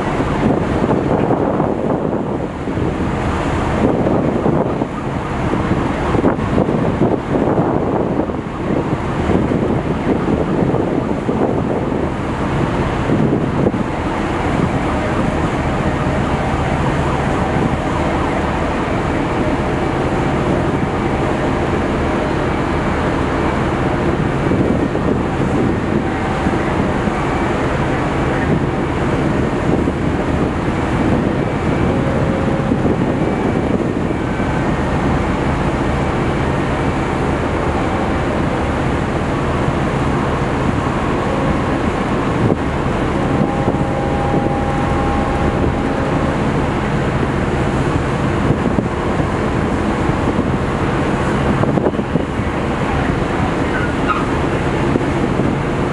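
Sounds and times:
loud machinery drone: 0:00.0 - 0:55.9
brief high tones: 0:43.1 - 0:47.2.

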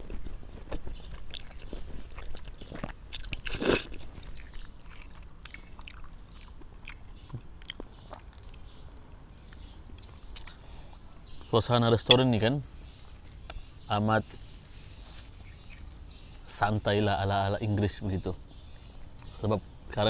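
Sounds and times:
person chewing: 0:00.0 - 0:08.5
person slurping noodles: 0:03.5 - 0:03.9.

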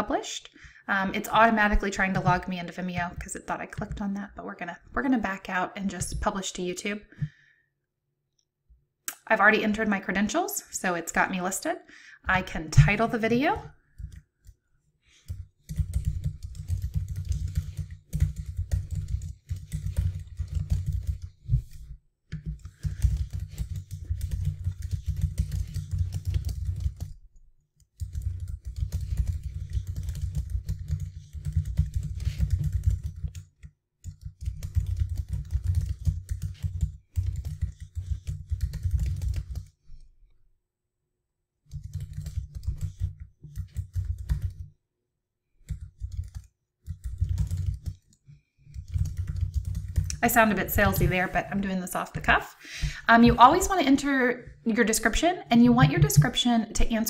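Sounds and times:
typing on computer keyboard: 0:12.8 - 0:14.6, 0:15.2 - 0:27.2, 0:27.8 - 0:39.7, 0:41.7 - 0:44.7, 0:45.6 - 0:51.1.

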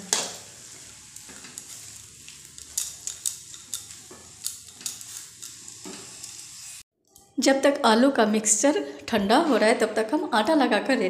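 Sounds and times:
faint sizzle: 0:00.0 - 0:06.8.

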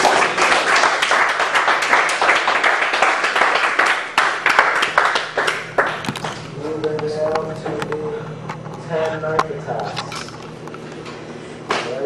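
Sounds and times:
people clapping: 0:00.0 - 0:08.0.

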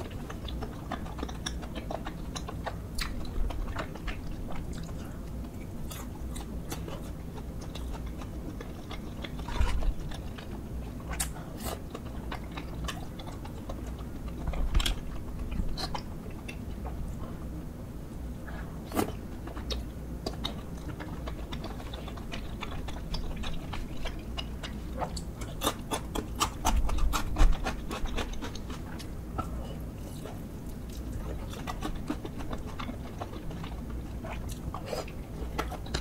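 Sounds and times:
wet chewing and mouth smacks: 0:00.0 - 0:17.4, 0:18.5 - 0:36.0.

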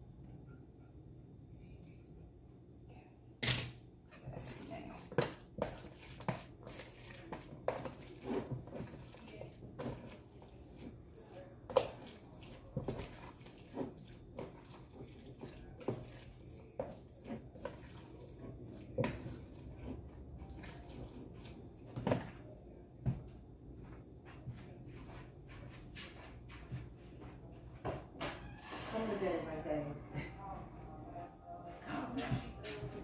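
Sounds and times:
hands squishing wet stuffing: 0:04.6 - 0:22.0
steady low hum: 0:28.8 - 0:33.0.

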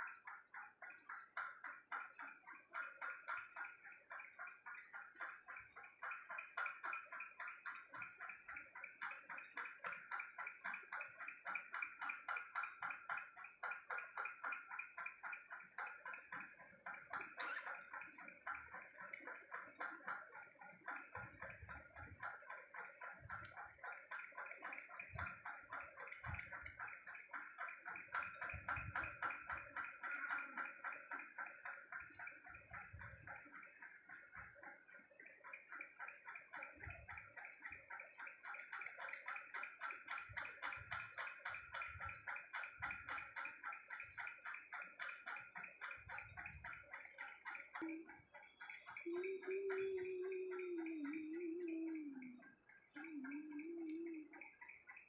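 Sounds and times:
budgies gurgling tick: 0:00.0 - 0:55.0.

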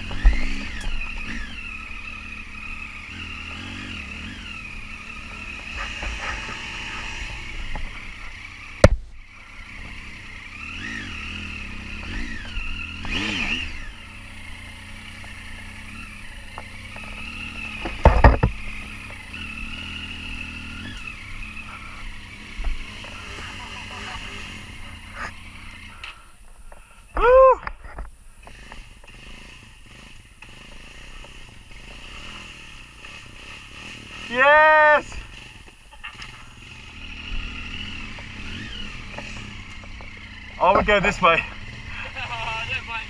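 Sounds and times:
motorcycle engine revving: 0:00.0 - 0:43.0
sharp knocks: 0:17.8 - 0:18.6.

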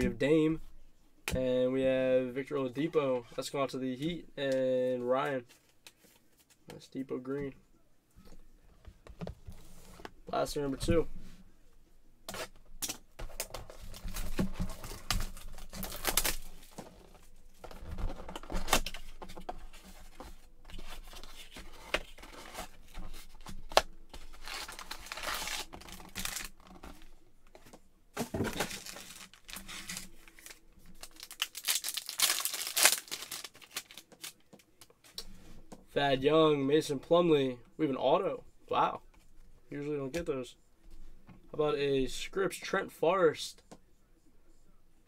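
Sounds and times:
wrappers crinkling: 0:13.4 - 0:16.6, 0:24.3 - 0:26.8, 0:28.5 - 0:34.5.

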